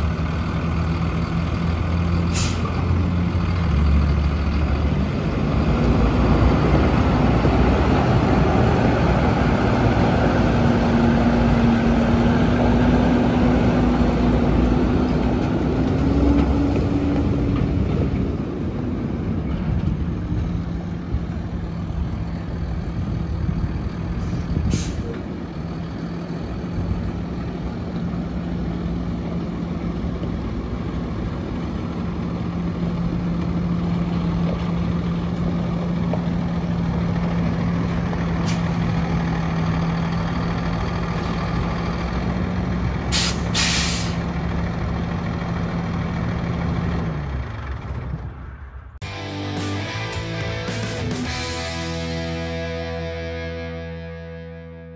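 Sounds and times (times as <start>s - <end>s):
truck diesel engine: 0.0s - 54.9s
sharp hiss: 43.1s - 44.2s.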